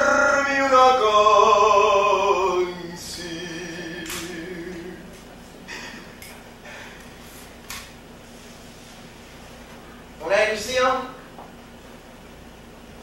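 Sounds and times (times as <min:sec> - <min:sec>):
man singing sliding note: 0:00.0 - 0:05.2
man humming: 0:00.0 - 0:06.1.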